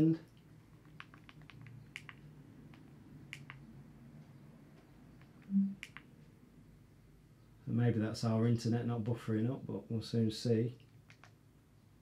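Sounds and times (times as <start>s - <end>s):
low steady hum: 0.0s - 12.0s
sharp clicks: 0.8s - 3.6s, 5.2s - 6.1s, 11.0s - 11.4s.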